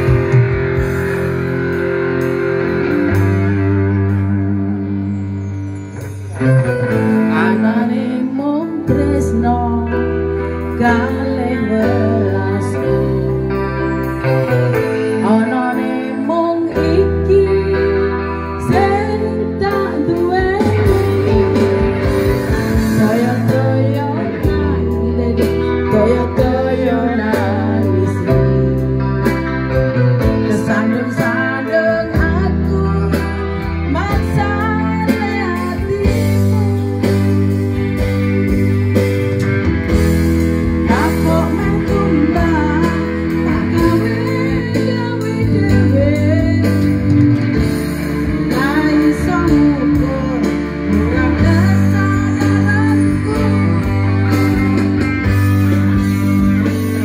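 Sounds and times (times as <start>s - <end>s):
electric guitar: 0.0s - 57.0s
electronic keyboard: 0.0s - 57.0s
live band music: 0.0s - 57.0s
woman singing: 7.0s - 14.1s, 14.9s - 29.4s, 30.2s - 37.7s, 40.8s - 55.0s.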